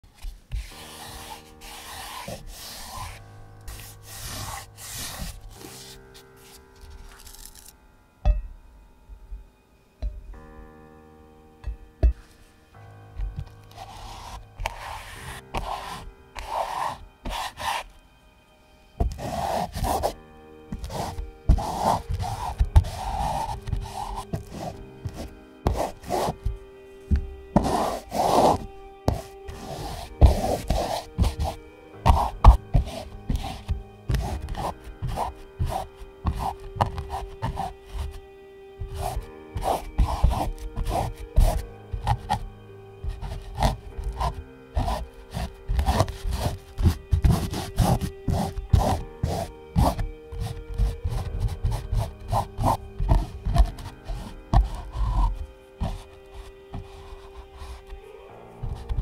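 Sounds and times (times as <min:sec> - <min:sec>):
soft background music: 0:00.0 - 0:59.0
papery rubbing strokes: 0:00.1 - 0:07.6, 0:13.3 - 0:17.9, 0:19.0 - 0:59.0
tape unrolling: 0:00.2 - 0:07.8, 0:19.0 - 0:38.2, 0:38.8 - 0:42.5, 0:43.1 - 0:58.0.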